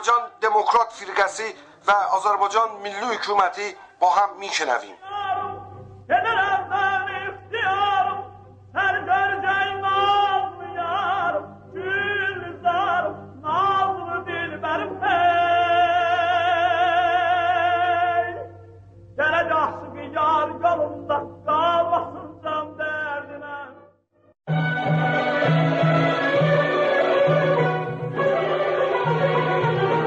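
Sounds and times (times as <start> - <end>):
person singing with vibrato: 4.9 - 18.6, 24.5 - 30.0.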